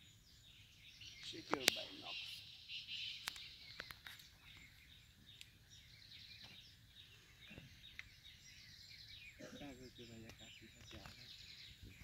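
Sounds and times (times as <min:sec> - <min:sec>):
bird chirps: 0:00.0 - 0:12.0
small clicks: 0:03.2 - 0:04.3.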